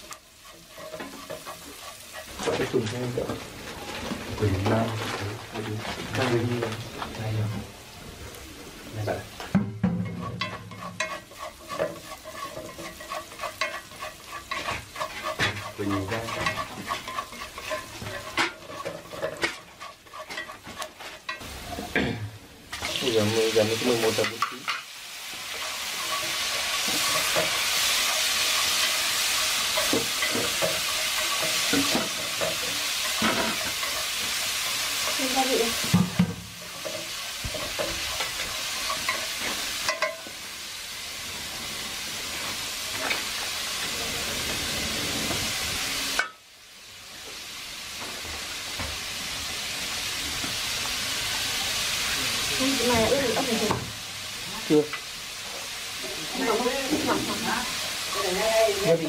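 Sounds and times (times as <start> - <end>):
wooden spatula scraping a pan: 0.0 - 7.8, 8.8 - 22.1, 22.7 - 40.4, 56.3 - 59.0
food sizzling in a wok: 0.0 - 59.0.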